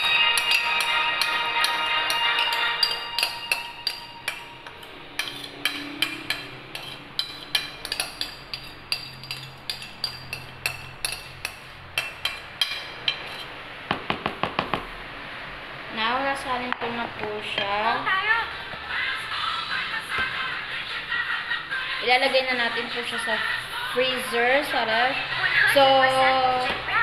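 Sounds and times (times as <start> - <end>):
utensil tapping metal bowl rim: 0.0 - 13.2.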